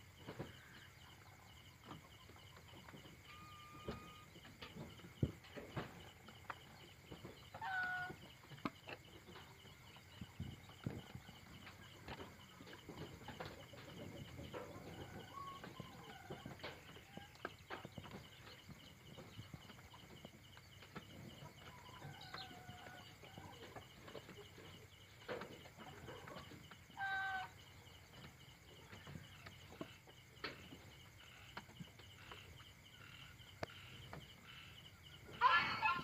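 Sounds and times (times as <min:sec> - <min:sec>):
chickens making soft calls: 0:00.1 - 0:36.0.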